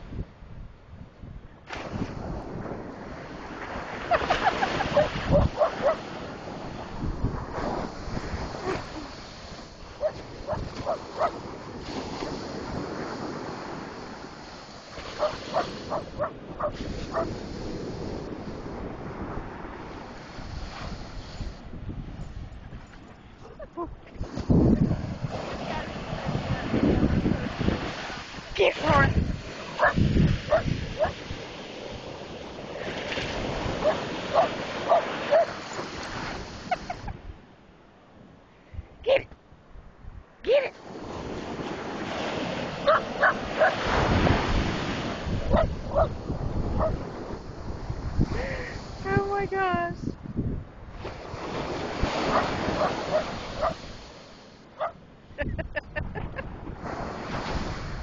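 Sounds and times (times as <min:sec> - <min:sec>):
ocean waves breaking: 0:01.6 - 0:38.4, 0:40.5 - 0:50.1, 0:50.7 - 0:58.0
dog barking: 0:04.1 - 0:06.1, 0:10.0 - 0:11.4, 0:15.2 - 0:17.3, 0:29.7 - 0:31.2, 0:33.8 - 0:35.6, 0:42.8 - 0:43.9, 0:45.5 - 0:46.2, 0:46.8 - 0:47.0, 0:52.3 - 0:53.8, 0:54.8 - 0:55.0.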